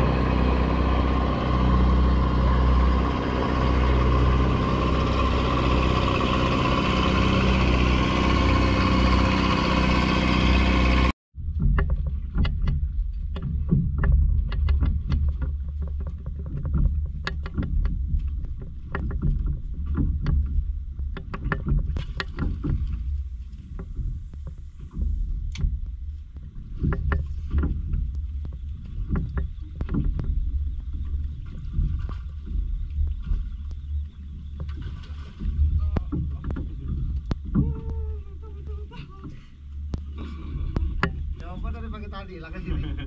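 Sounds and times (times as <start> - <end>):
boat engine low rumble: 0.0 - 43.0
water slapping against hull: 0.0 - 43.0.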